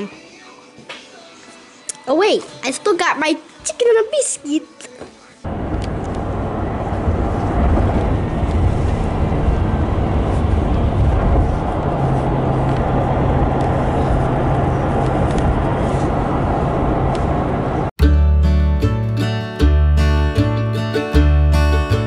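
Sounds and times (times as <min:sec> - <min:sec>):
road and engine rumble: 0:05.5 - 0:18.0.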